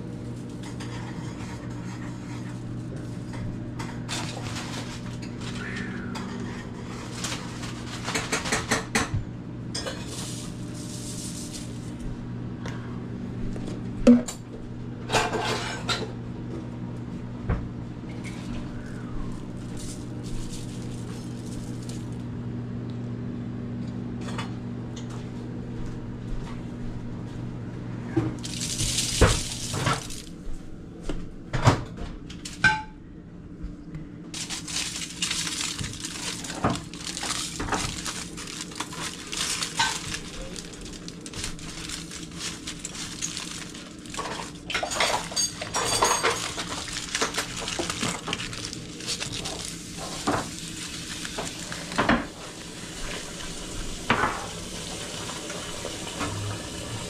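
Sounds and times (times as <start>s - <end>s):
dishes and utensils clinking: 34.4s - 40.7s, 42.0s - 50.5s.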